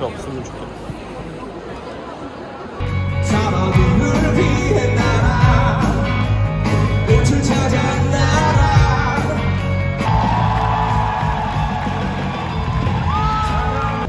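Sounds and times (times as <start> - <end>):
rock band playing live: 2.8 - 14.0
person singing: 3.0 - 10.1.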